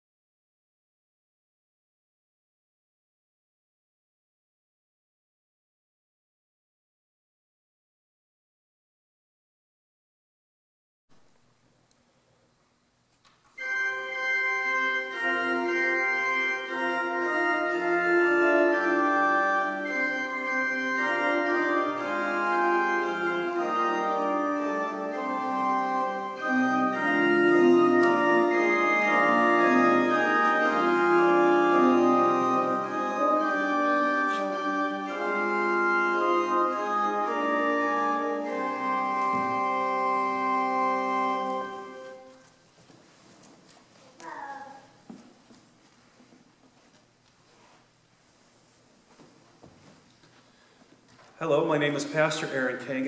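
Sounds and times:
organ chords: 13.5s - 42.5s.

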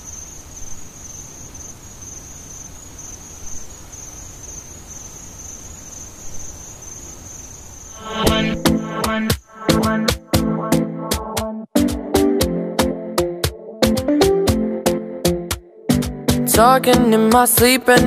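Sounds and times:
crickets trilling: 0.0s - 10.0s
music with strong beat: 8.0s - 18.0s.

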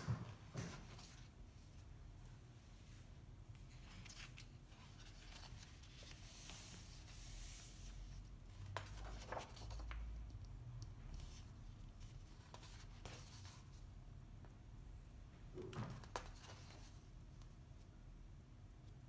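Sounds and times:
book pages turning: 0.7s - 1.4s, 3.6s - 10.3s, 16.0s - 17.0s.

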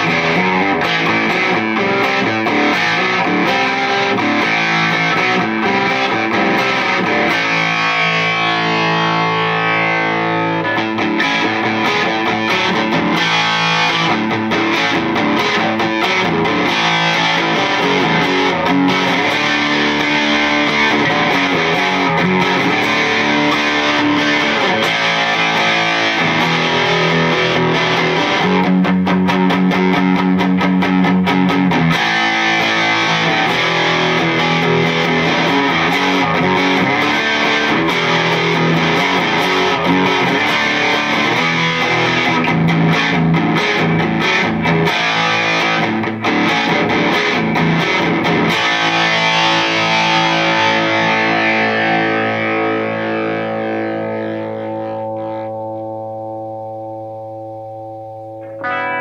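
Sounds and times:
electric guitar lead licks: 0.0s - 59.0s.

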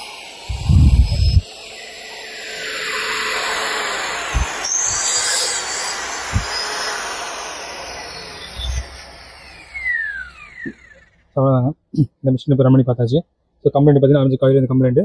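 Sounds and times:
electric motor whining: 0.0s - 11.3s.

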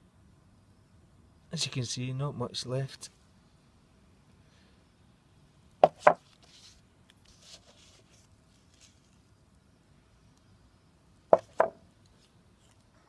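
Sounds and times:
faint rustling of handling: 6.1s - 9.4s, 12.0s - 13.0s
brake pads clacking on hard surface: 11.4s - 11.8s.

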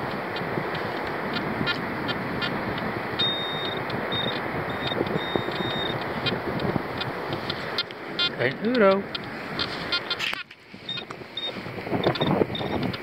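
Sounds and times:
wind rush: 0.0s - 13.0s
pinpointer beeping: 3.2s - 7.1s, 7.8s - 13.0s.

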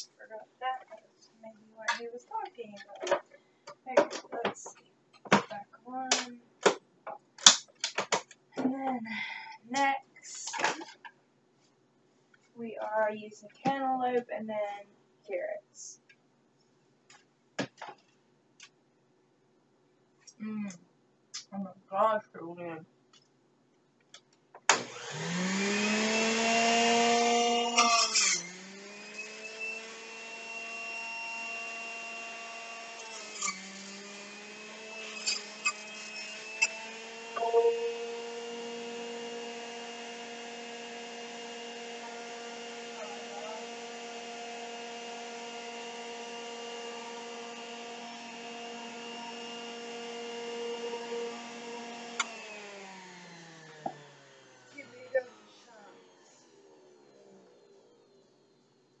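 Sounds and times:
electric juicer motor whining: 24.7s - 58.0s.

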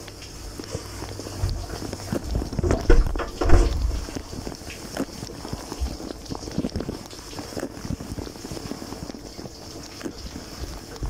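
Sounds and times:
dishwasher water spraying: 0.0s - 11.0s
water knocking on dishes: 1.4s - 4.5s.

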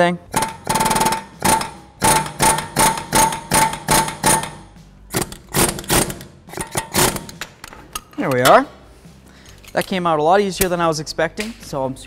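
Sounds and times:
air chisel hammering on metal: 0.3s - 7.4s.

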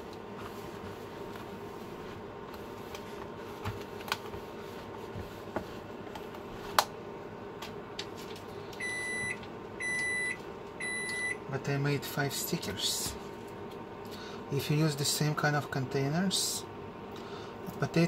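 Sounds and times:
steady hum: 0.0s - 18.0s
appliance electronic beep: 8.8s - 11.4s.

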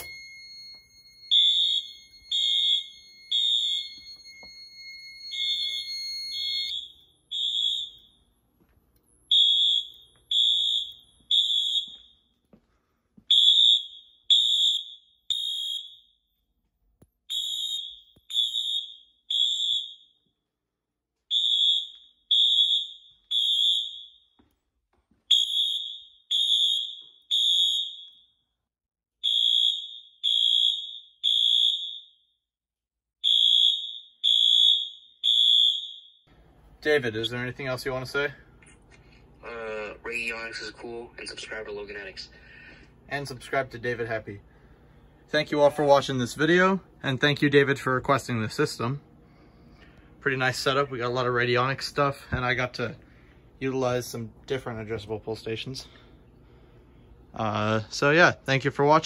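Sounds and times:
fire alarm beeping: 0.0s - 12.5s, 13.2s - 16.5s, 17.2s - 20.5s, 21.2s - 24.5s, 25.2s - 28.6s, 29.2s - 32.4s, 33.2s - 36.4s.

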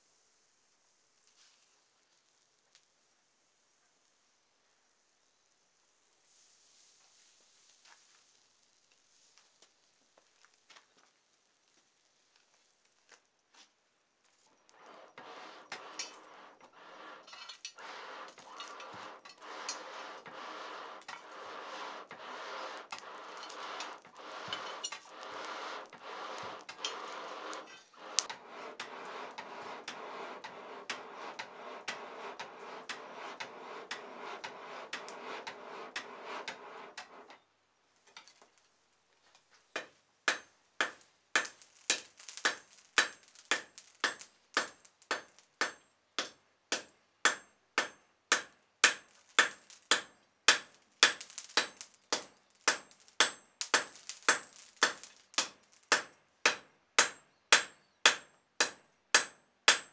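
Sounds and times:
forge fire rushing: 14.6s - 37.3s, 40.8s - 45.3s, 48.9s - 56.0s.

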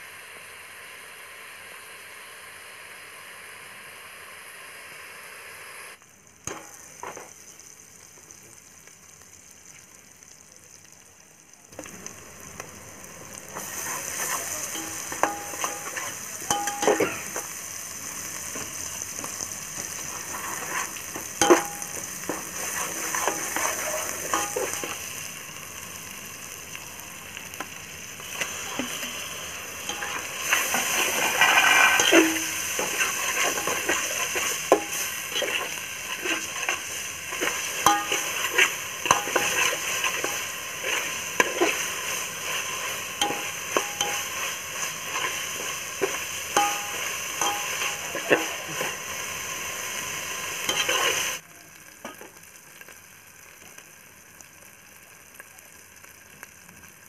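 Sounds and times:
masala sizzling in oil: 0.0s - 57.0s
spatula scraping pot: 13.6s - 17.5s, 20.0s - 25.0s, 29.8s - 49.0s, 50.6s - 51.4s.

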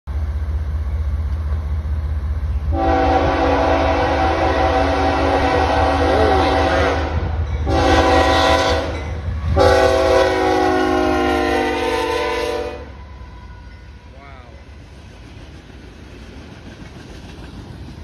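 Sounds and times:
train engines and wheels rumbling: 0.1s - 18.0s
locomotive air horn blasts: 2.7s - 13.0s.

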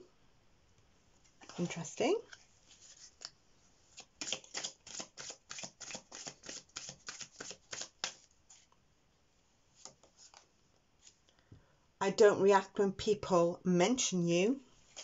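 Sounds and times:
soft clicks of cards handled: 2.3s - 3.4s, 9.8s - 11.4s
cards being shuffled: 2.3s - 8.7s, 9.8s - 11.2s.

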